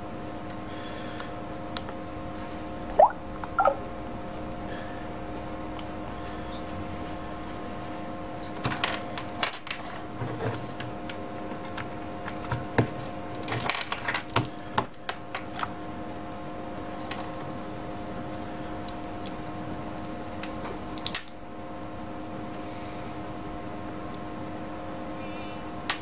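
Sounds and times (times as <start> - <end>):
steady multi-tone hum: 0.0 - 26.0
rising electronic blip: 3.0 - 3.9.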